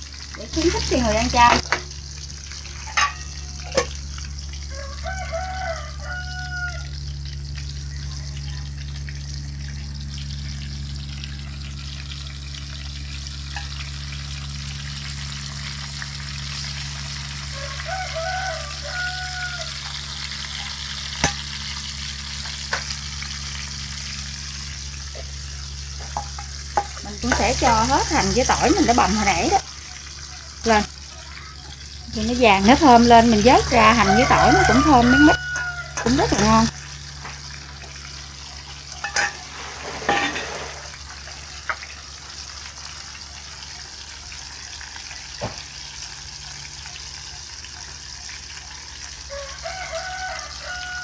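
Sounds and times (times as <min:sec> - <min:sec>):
food sizzling in oil: 0:00.0 - 0:51.0
rooster crowing: 0:04.6 - 0:07.2, 0:17.4 - 0:20.5, 0:32.4 - 0:36.7, 0:49.2 - 0:51.0.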